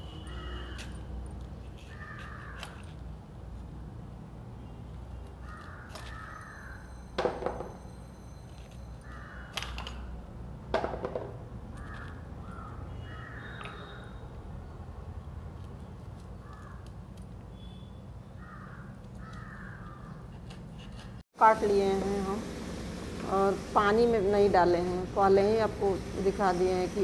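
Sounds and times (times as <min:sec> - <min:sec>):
crows cawing: 0:01.9 - 0:02.8, 0:05.4 - 0:06.8, 0:09.1 - 0:09.6, 0:11.8 - 0:14.2, 0:18.4 - 0:20.1.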